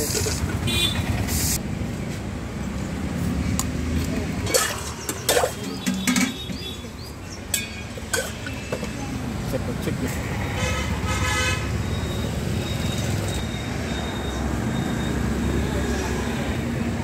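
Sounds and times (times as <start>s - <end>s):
road traffic rumble: 0.0s - 17.0s
ladles and pots clinking: 4.4s - 6.9s, 7.5s - 8.9s.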